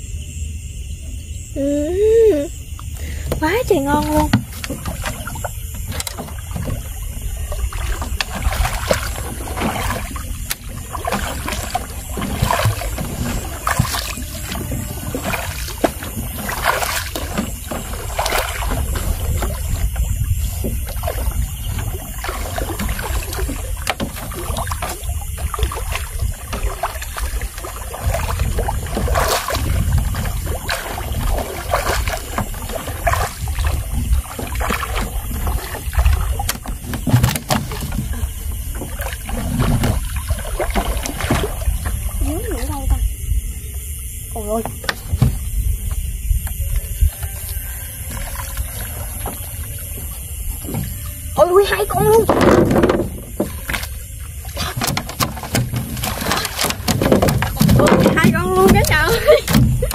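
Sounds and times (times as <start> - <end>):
water splashes and drips: 2.2 - 59.9
knocks against boat hull: 3.3 - 5.2, 44.6 - 46.5, 52.2 - 53.8.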